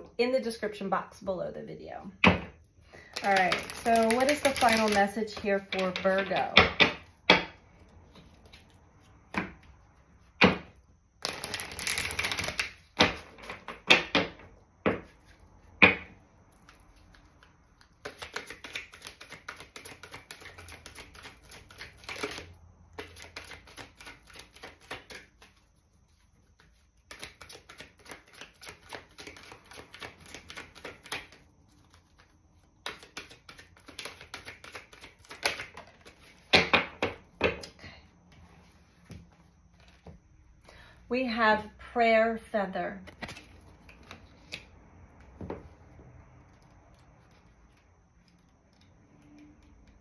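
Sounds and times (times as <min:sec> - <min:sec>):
cards shuffling rapid clicking: 0:03.0 - 0:06.4, 0:11.2 - 0:13.9, 0:16.6 - 0:36.5
cards tapping and slapping: 0:03.1 - 0:08.6, 0:10.4 - 0:25.7, 0:26.5 - 0:37.7.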